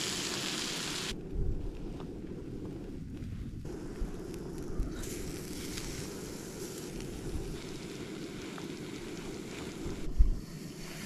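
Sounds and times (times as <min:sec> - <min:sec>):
camping stove burner running: 0:00.0 - 0:01.2, 0:03.7 - 0:10.4.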